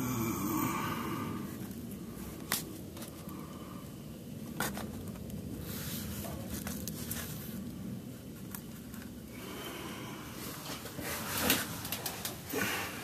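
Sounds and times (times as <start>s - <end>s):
shuffling and scraping of crawling: 4.6s - 7.7s.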